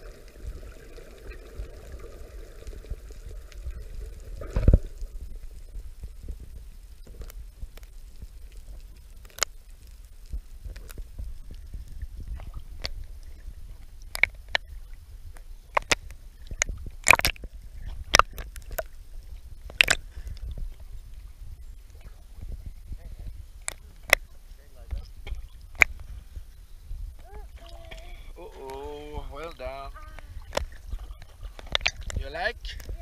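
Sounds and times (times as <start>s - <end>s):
sea water sloshing and splashing: 0.0s - 9.8s
steady low rumble: 0.0s - 33.0s.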